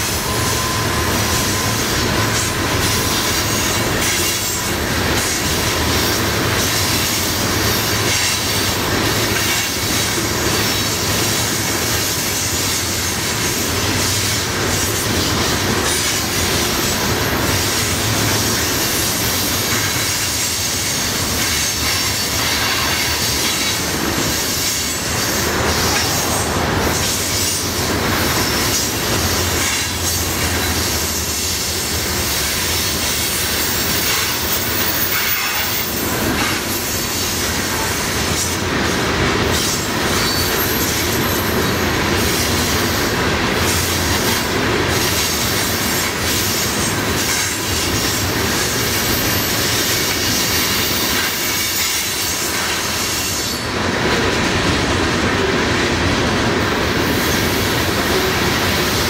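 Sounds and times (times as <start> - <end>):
wheel squeal against rail: 0.0 - 53.9
train wheels rumbling on rails: 0.0 - 59.0.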